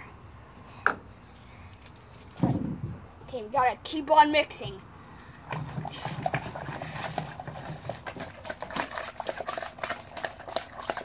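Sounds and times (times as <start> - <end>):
spoon stirring watery mixture: 5.5 - 11.0.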